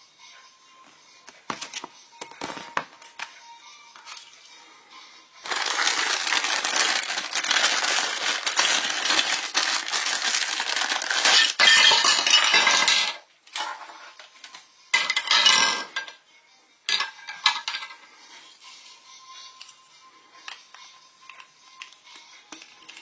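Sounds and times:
plastic wrapper crinkling: 0:05.4 - 0:11.6.

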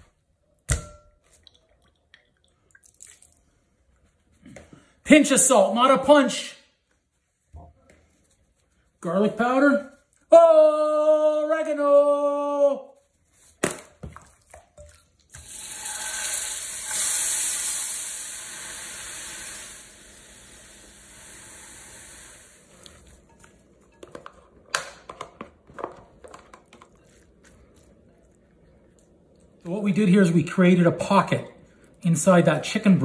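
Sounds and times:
vegetables sizzling in a skillet: 0:15.4 - 0:23.1.

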